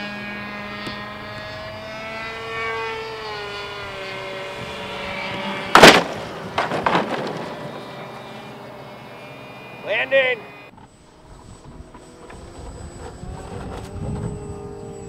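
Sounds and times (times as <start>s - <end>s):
model plane crashing: 0.0s - 9.9s, 10.6s - 15.0s
plane skidding impacts: 0.0s - 9.9s
model plane propellers whining: 0.0s - 15.0s.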